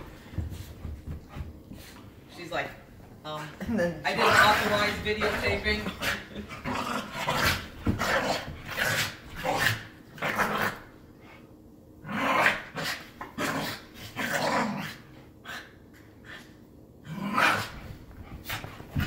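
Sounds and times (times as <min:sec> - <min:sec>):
puppies growling: 0:04.1 - 0:10.9.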